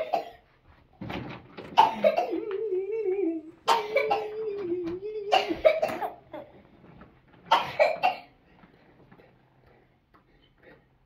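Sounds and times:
baby vocalizing: 1.8s - 6.5s
baby laughing: 1.8s - 6.6s.

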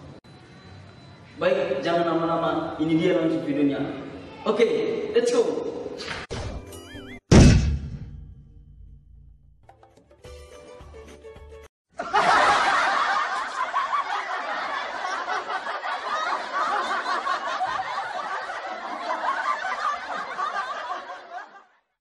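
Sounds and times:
crowd laughing: 11.9s - 22.0s.

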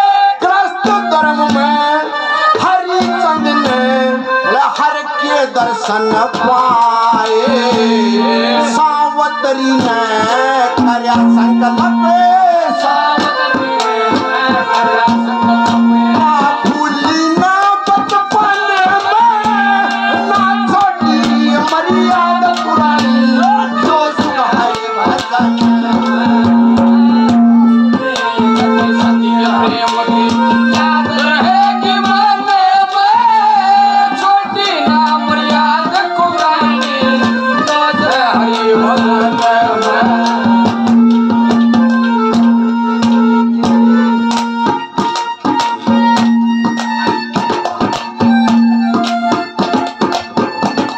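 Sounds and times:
man singing: 0.0s - 44.9s
harmonium-like melody: 0.0s - 50.9s
jingling percussion: 0.8s - 50.9s.

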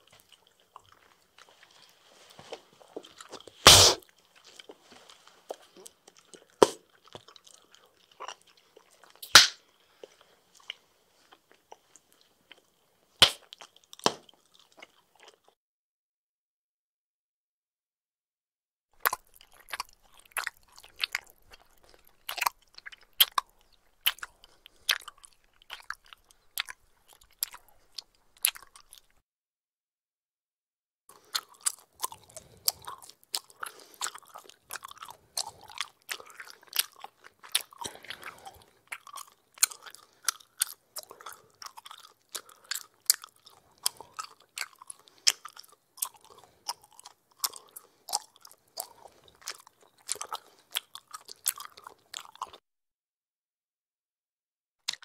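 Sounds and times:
gum chewing mouth smacks: 5.5s - 10.8s, 19.0s - 29.2s, 31.1s - 52.6s.

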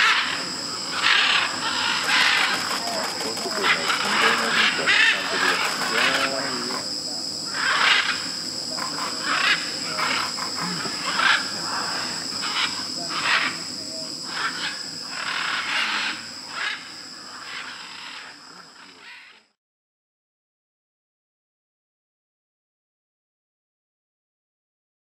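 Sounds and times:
macaws squawking: 0.0s - 19.5s
insect drone: 0.0s - 19.6s.

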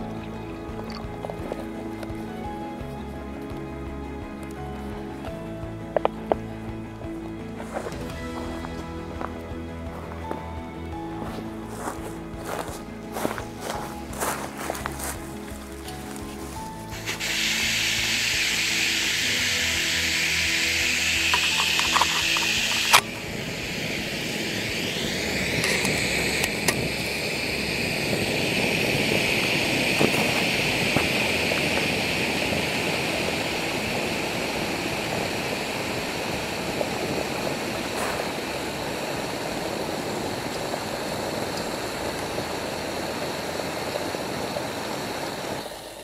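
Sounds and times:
gas stove burning roar: 11.7s - 46.0s.

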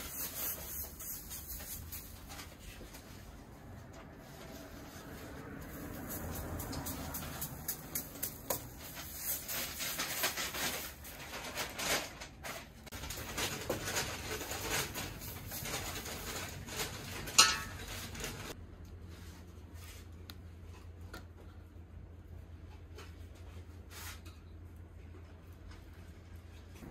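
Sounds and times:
utensils scraping iron griddle: 13.6s - 18.6s.

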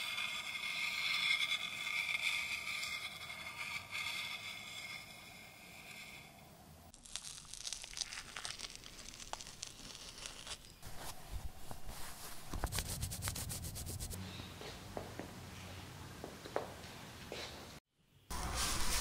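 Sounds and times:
hand scraping brick wall: 0.0s - 6.6s, 8.8s - 14.2s
arm rubbing cloth: 9.9s - 14.2s.

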